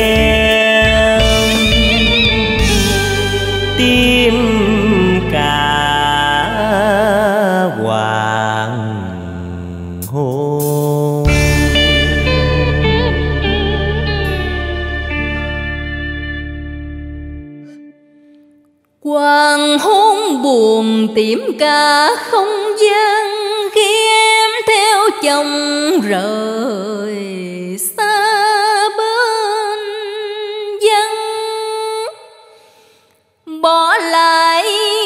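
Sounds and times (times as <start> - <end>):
held instrumental note: 0.0 - 6.7, 11.3 - 18.0
woman singing with vibrato: 0.0 - 8.8, 11.3 - 15.4, 19.0 - 32.5, 33.5 - 35.0.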